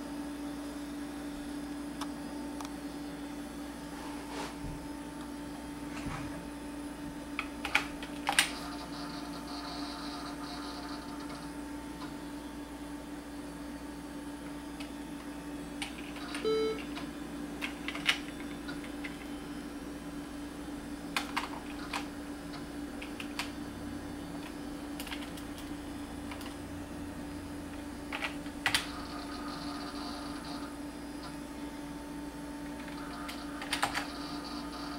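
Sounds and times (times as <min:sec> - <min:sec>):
steady hum: 0:00.0 - 0:34.9
computer keyboard keystrokes: 0:07.4 - 0:08.6, 0:17.6 - 0:19.3, 0:21.2 - 0:22.1, 0:23.0 - 0:23.6, 0:24.4 - 0:25.7, 0:26.3 - 0:26.6, 0:28.1 - 0:28.9, 0:32.8 - 0:34.1.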